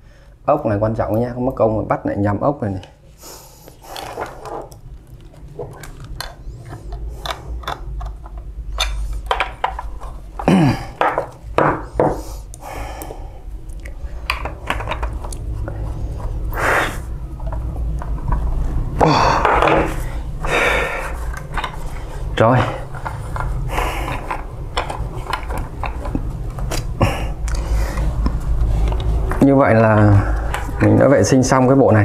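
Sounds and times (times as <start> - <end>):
steady low hum: 0.0 - 32.0
handling noises: 3.7 - 12.6, 14.0 - 32.0
plastic parts clicking and knocking: 3.9 - 12.2, 14.2 - 16.3, 19.3 - 20.0, 21.3 - 22.0, 22.6 - 30.8.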